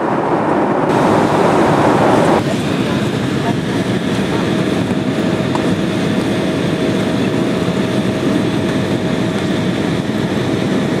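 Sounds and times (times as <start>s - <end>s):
airliner cabin engine rush: 0.0s - 11.0s.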